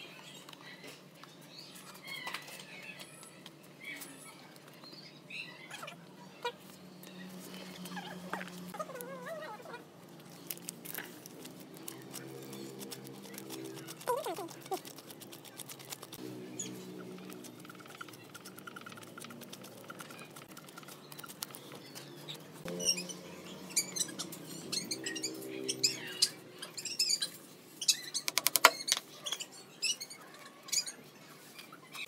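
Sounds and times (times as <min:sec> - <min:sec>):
wooden stick stirring paste: 0:11.7 - 0:16.2, 0:17.2 - 0:22.0.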